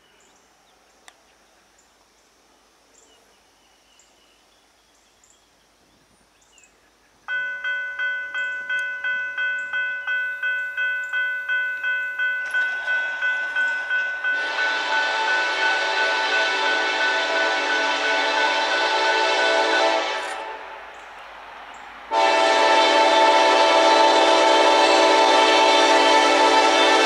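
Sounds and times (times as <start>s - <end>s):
railroad crossing bell ringing: 7.3s - 21.0s, 22.1s - 27.0s
loud hissing noise: 14.4s - 27.0s.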